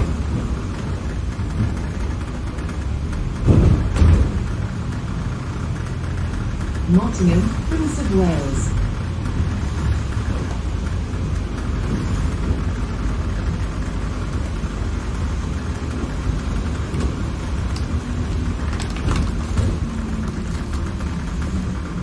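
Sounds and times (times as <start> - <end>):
bodywork clicks and rattles: 0.0 - 22.0
bus engine rumble: 0.0 - 22.0.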